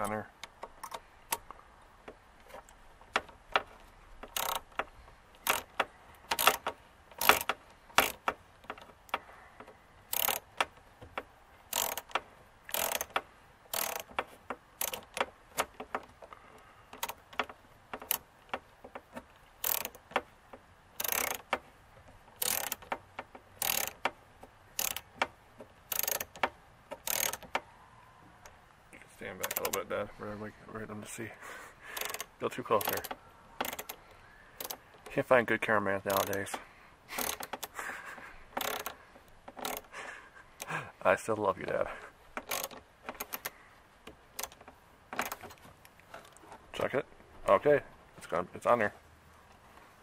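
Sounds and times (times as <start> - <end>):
hand driver ratcheting clicks: 0.0 - 27.7, 29.2 - 29.9, 31.9 - 35.3, 36.0 - 37.8, 38.5 - 40.0, 42.4 - 46.4.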